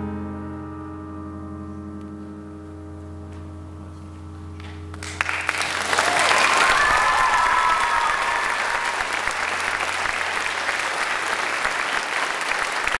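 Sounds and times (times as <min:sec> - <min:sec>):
audience applauding: 0:04.6 - 0:13.0
person whooping: 0:05.9 - 0:09.3.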